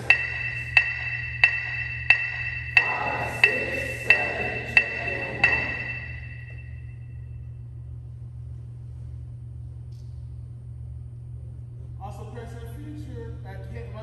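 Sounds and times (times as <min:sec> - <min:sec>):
electronic metronome beeping: 0:00.0 - 0:07.2.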